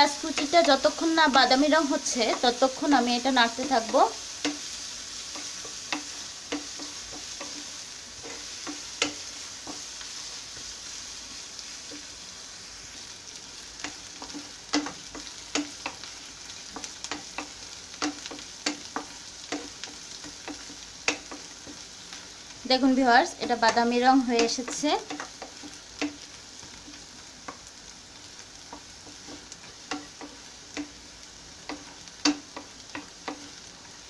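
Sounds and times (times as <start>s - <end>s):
onions sizzling in oil: 0.0s - 34.0s
spatula tapping and scraping pan: 0.2s - 10.8s, 11.8s - 12.1s, 13.5s - 22.3s, 23.4s - 27.8s, 28.6s - 33.7s.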